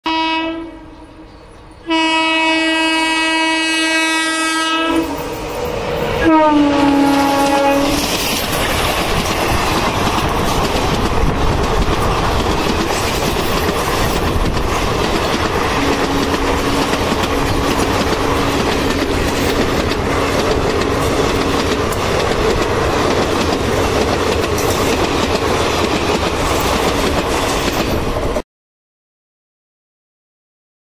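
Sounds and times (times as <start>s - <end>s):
locomotive horn blasts: 0.0s - 1.2s, 1.8s - 5.3s, 6.2s - 8.1s, 15.7s - 19.0s
train wheel clatter: 6.8s - 28.4s.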